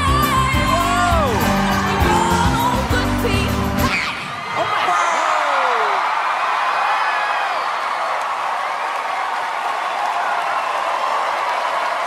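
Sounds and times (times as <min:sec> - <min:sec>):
audience shouting: 0:03.9 - 0:12.0
audience clapping: 0:05.6 - 0:12.0.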